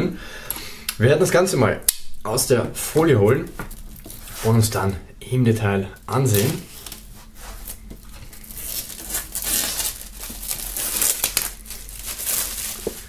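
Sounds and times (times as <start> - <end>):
plastic film crinkling: 6.2 - 13.0.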